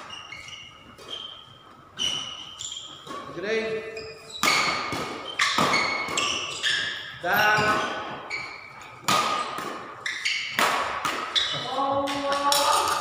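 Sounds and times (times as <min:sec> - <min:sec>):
shoes squeaking on court floor: 0:00.0 - 0:13.0
rackets hitting shuttlecock: 0:04.3 - 0:13.0.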